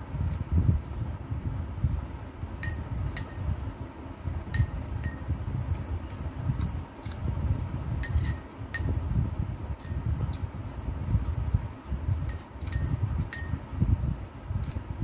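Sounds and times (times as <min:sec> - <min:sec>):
close chewing and eating: 0:04.6 - 0:08.7, 0:09.9 - 0:13.6, 0:14.6 - 0:15.0
utensil clinking against dish: 0:08.0 - 0:09.0, 0:11.7 - 0:13.6.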